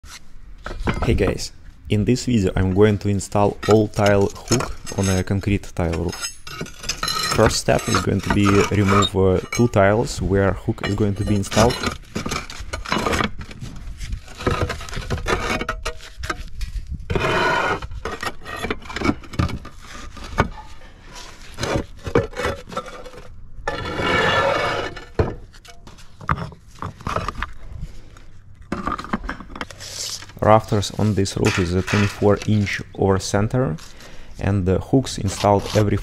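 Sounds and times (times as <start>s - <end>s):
tile scraping over tile: 7.2s - 9.4s, 10.8s - 25.2s, 30.9s - 32.8s, 35.2s - 36.0s.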